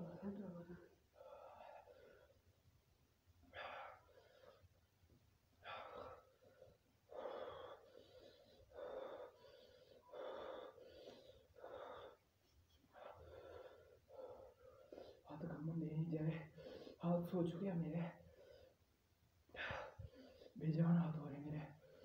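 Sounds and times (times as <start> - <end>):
man panting: 5.6 - 15.2.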